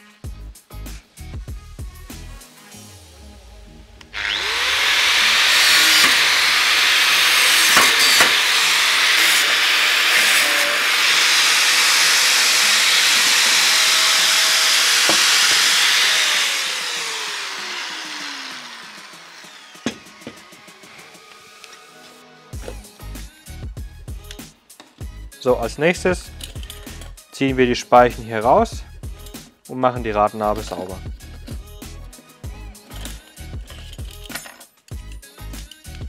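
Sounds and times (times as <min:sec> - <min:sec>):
angle grinder cutting metal: 0:04.0 - 0:21.9.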